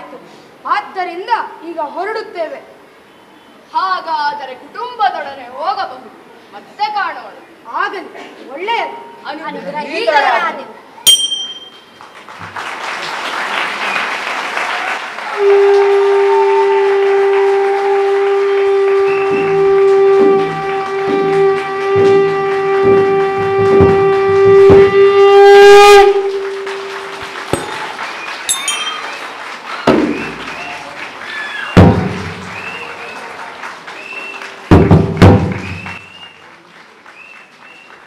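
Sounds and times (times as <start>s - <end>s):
applause: 11.8s - 25.1s, 26.1s - 38.0s
long horn-like wind instrument note: 15.4s - 27.8s
drum beats: 20.5s - 25.1s, 26.5s - 29.2s, 34.7s - 36.0s.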